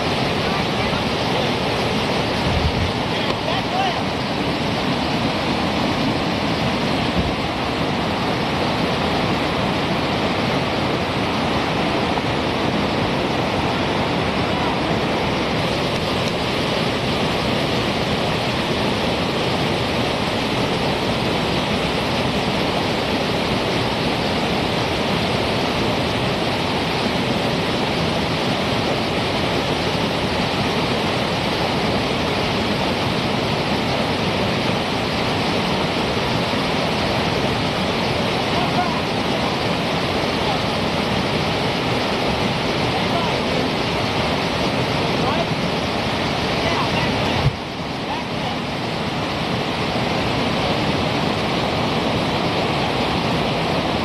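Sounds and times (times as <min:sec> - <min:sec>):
water rushing over rocks: 0:00.0 - 0:54.0.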